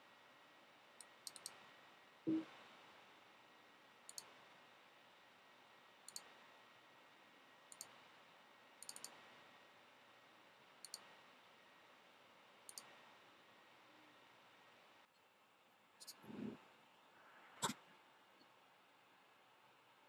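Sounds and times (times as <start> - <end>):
computer mouse clicking: 1.0 - 1.6, 4.1 - 4.4, 6.0 - 6.4, 7.7 - 8.0, 8.8 - 9.3, 10.8 - 11.2, 12.6 - 13.0.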